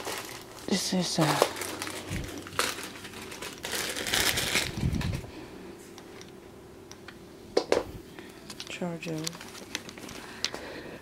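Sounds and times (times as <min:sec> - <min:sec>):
plastic bag crinkling: 0:00.0 - 0:05.3, 0:08.6 - 0:10.6.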